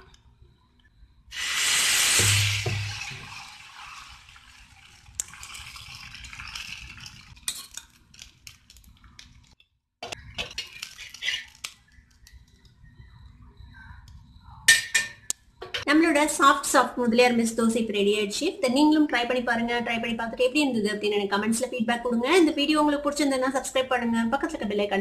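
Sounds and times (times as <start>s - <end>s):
batter hissing on hot pan: 1.3s - 7.3s.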